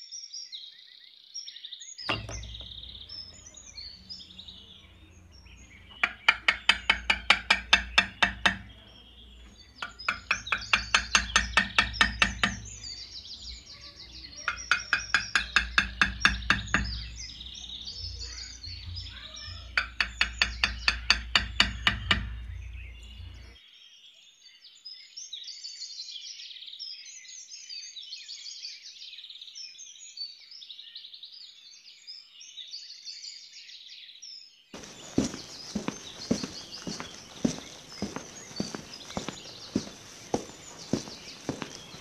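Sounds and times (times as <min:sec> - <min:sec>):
birds chirping and twittering: 0:00.0 - 0:42.0
sharp taps: 0:02.1 - 0:03.6, 0:05.7 - 0:08.8, 0:09.4 - 0:13.6, 0:14.5 - 0:17.3, 0:19.7 - 0:22.5, 0:34.8 - 0:42.0.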